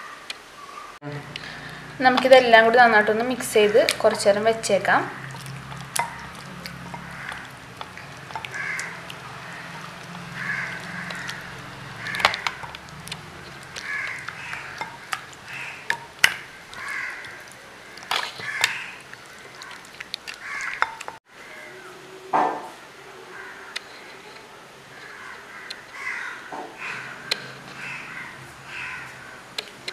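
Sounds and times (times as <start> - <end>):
hands squishing chicken in marinade: 5.2 - 21.2
bird calls: 5.2 - 22.0, 23.3 - 29.4.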